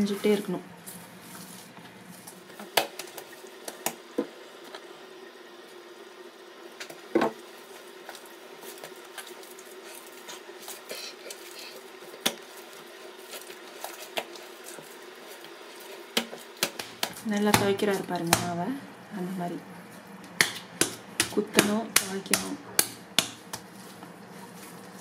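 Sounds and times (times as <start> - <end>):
hands kneading dough: 7.5 - 25.0
dough slapping against counter: 16.1 - 18.6, 20.4 - 23.7.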